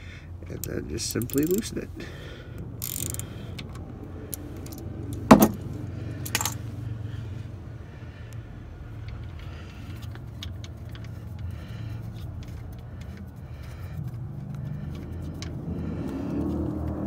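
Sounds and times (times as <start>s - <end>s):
steady low hum: 0.0s - 17.0s
small metallic clicks: 0.5s - 1.7s, 2.8s - 5.6s.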